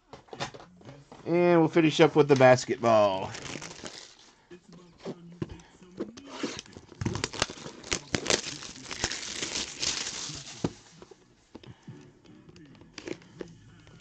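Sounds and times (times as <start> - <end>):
plastic wrapping crinkling and tearing: 2.4 - 4.2, 6.4 - 10.8.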